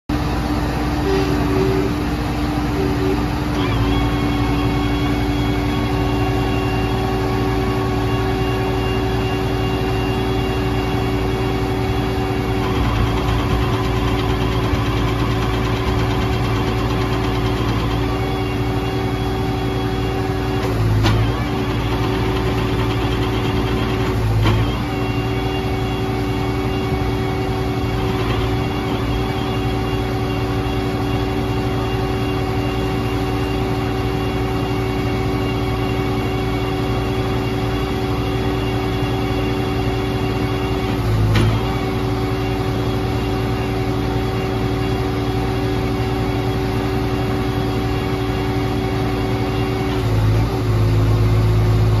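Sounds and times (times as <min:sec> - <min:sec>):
diesel engine running with whine: 0:00.0 - 0:52.0.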